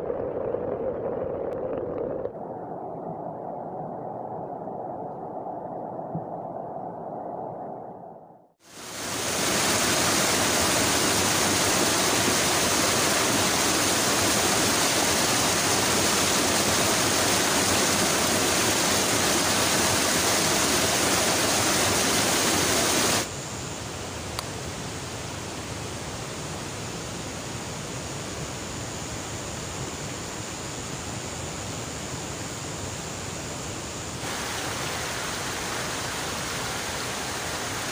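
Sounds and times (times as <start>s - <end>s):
quieter steady hiss: 0.0s - 37.9s
stream water rushing: 8.7s - 23.3s, 34.2s - 37.9s.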